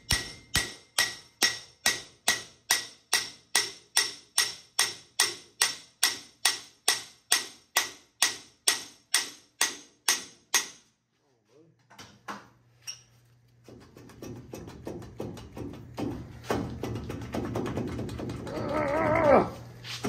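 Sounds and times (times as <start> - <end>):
hammer striking metal hub: 0.0 - 10.9.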